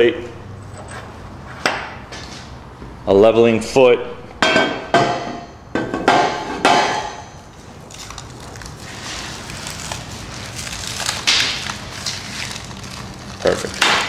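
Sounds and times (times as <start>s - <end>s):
plastic bag crinkling: 7.6s - 14.0s.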